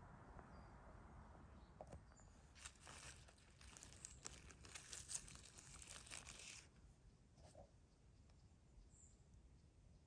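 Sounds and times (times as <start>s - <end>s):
dry leaves rustling and crackling: 2.5s - 6.7s.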